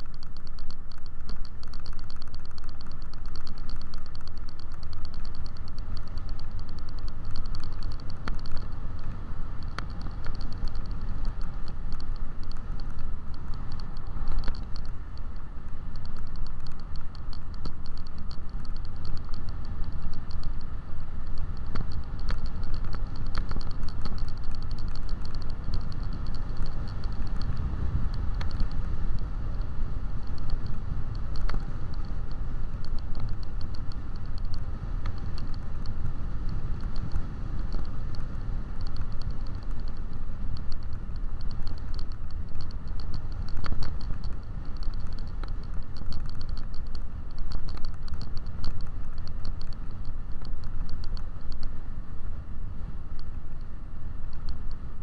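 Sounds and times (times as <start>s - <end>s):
faint high whine: 0.0s - 55.0s
low road rumble: 0.0s - 55.0s
small rattles and ticks: 0.0s - 55.0s.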